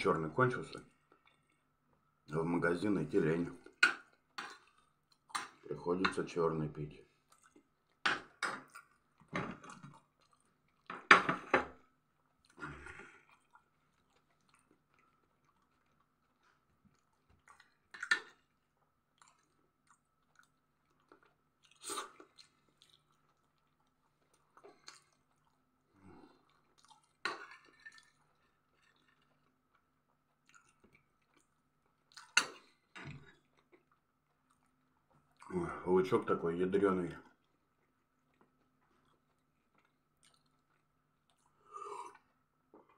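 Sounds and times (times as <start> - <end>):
person chewing food: 0.9 - 1.8, 3.6 - 5.7, 7.1 - 35.5, 37.3 - 42.9.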